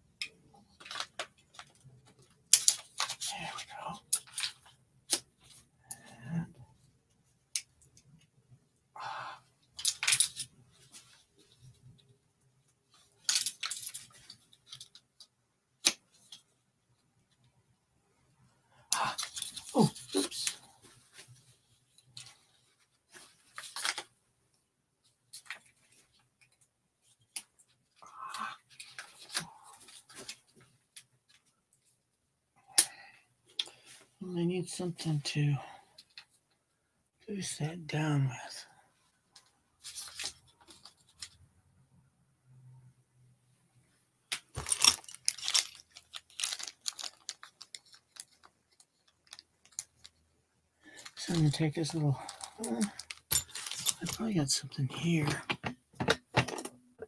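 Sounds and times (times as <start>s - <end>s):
rummaging through small objects: 0.7s - 4.8s, 9.8s - 11.6s, 12.9s - 15.1s, 18.9s - 21.2s, 44.4s - 50.2s, 50.9s - 56.7s.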